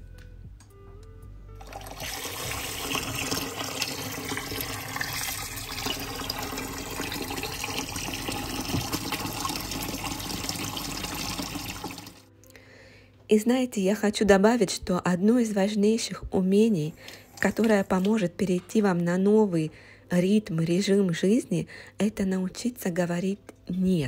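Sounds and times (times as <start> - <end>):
tap water running into a bowl: 1.6 - 12.2.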